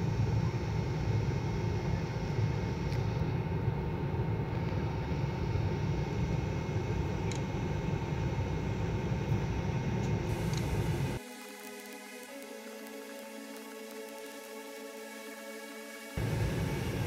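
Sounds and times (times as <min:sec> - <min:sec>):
train rumble inside coach: 0:16.2 - 0:17.0.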